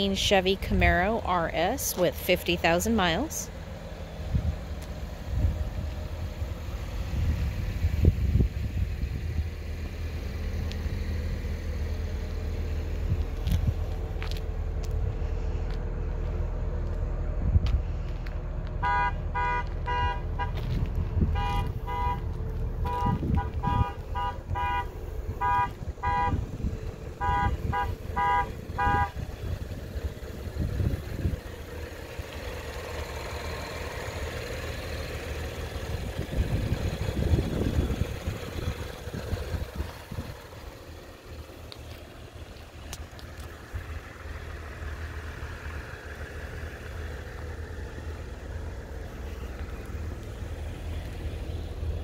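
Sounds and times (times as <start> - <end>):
steady low rumble: 0.0 - 52.0
vehicle horn honking: 18.8 - 29.3.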